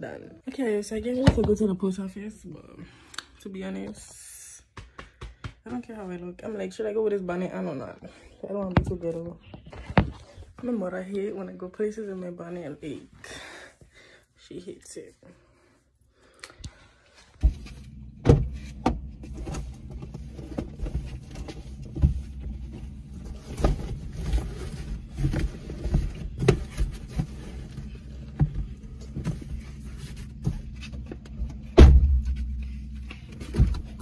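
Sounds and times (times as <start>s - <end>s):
cardboard box knocking and rustling: 18.2s - 30.7s
car door thump: 31.8s - 32.3s.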